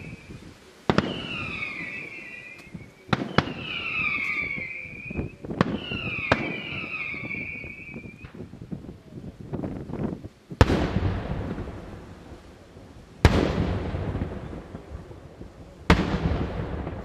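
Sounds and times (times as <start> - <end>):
small firework crackles: 0.0 - 17.0
firework bangs with echo: 0.9 - 8.5, 10.6 - 12.3, 13.2 - 17.0.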